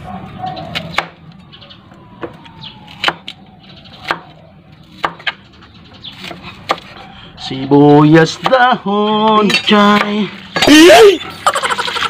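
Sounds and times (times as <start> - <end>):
knife chopping on cutting board: 4.9 - 5.4, 6.1 - 6.9.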